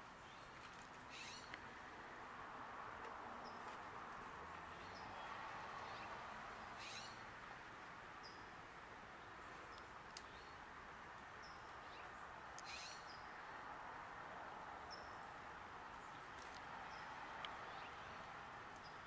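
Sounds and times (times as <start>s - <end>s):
soft steady hiss: 0.0s - 19.0s
high bird calls: 1.1s - 1.6s, 6.8s - 7.2s, 12.6s - 13.3s.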